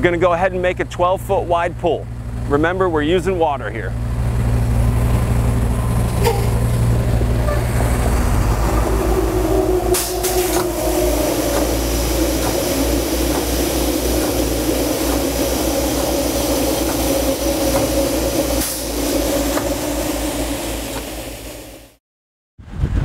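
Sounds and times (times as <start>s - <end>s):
diesel engines running: 0.0s - 22.0s
air hissing: 5.0s - 22.0s.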